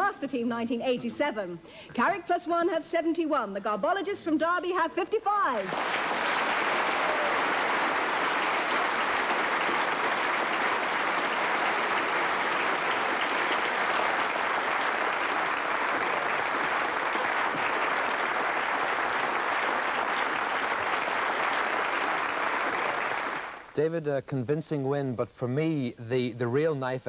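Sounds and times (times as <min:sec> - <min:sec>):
audience applauding: 0:05.6 - 0:23.7.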